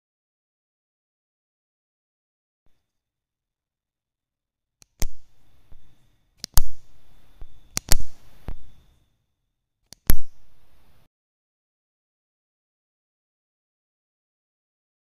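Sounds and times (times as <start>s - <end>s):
spot welder snaps: 4.8s - 8.7s
probe tips clicking: 4.8s - 8.8s, 9.9s - 10.5s.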